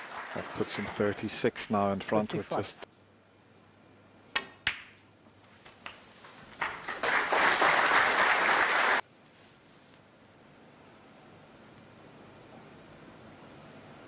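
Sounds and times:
audience applause: 0.0 - 1.4, 6.6 - 9.0.

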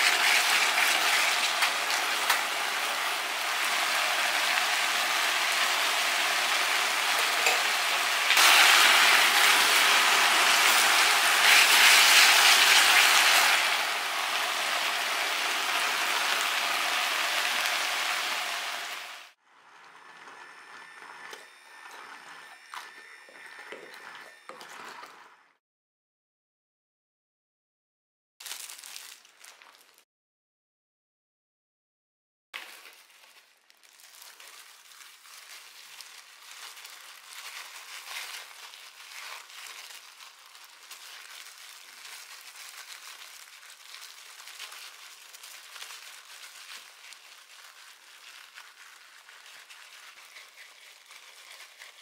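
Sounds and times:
sauce sizzling in frying pan: 0.0 - 19.4
thin steady whine: 19.6 - 25.4.

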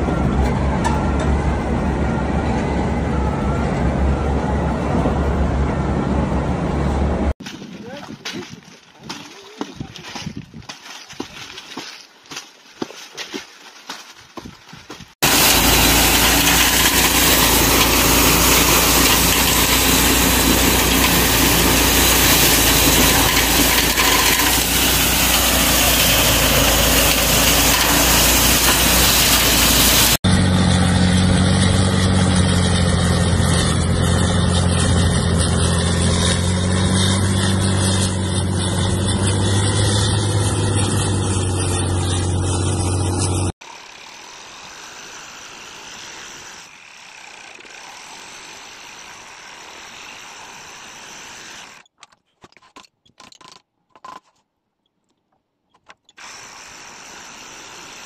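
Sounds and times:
low engine hum: 0.0 - 7.4, 15.2 - 43.6
wheel loader engine drone: 0.0 - 7.4, 15.2 - 51.8
thresher whirring hiss: 15.2 - 30.2, 31.5 - 51.8, 56.2 - 58.0.

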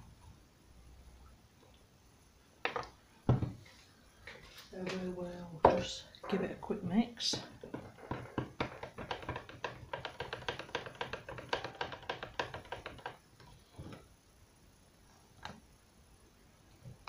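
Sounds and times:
stick stirring thick paint: 7.2 - 14.0
stick knocking on pot: 7.3 - 13.2.

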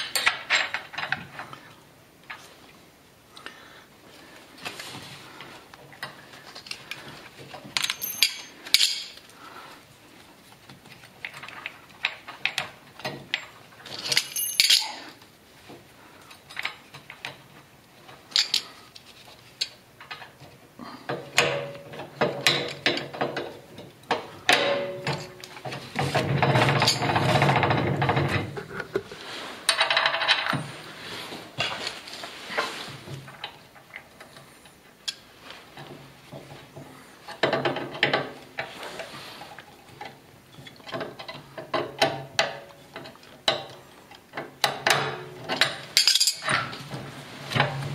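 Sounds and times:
small metal parts clinking: 7.7 - 9.2, 13.3 - 15.2, 18.3 - 18.8, 26.6 - 27.2, 45.6 - 46.7
rubbing and rattling: 22.0 - 34.6.

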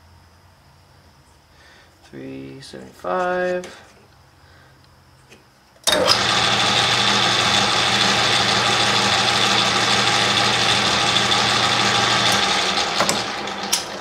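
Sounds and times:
metal lathe humming and whining: 5.9 - 14.0.

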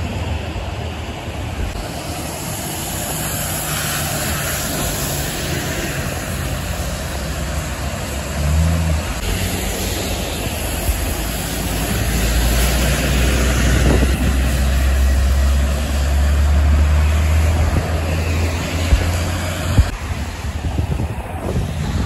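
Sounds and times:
bus engine drone: 0.0 - 22.0
tyres hissing on wet pavement: 0.0 - 22.0.

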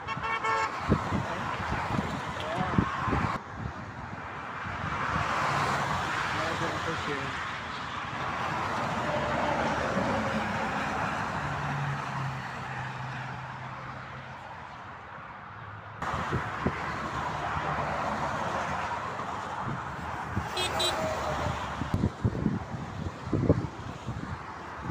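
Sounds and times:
highway traffic passing: 0.0 - 24.9.

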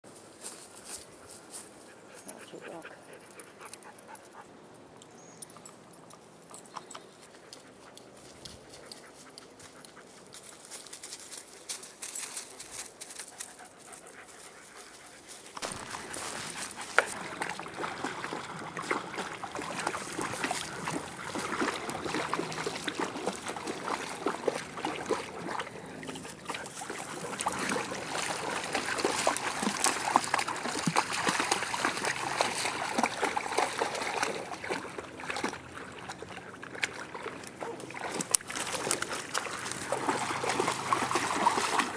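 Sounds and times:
dogs splashing in water: 15.6 - 41.9.

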